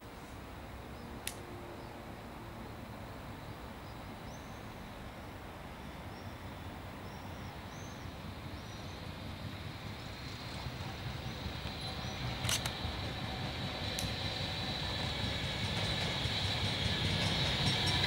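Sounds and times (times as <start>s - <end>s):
outdoor background noise: 0.0s - 18.0s
sharp click: 12.4s - 12.8s.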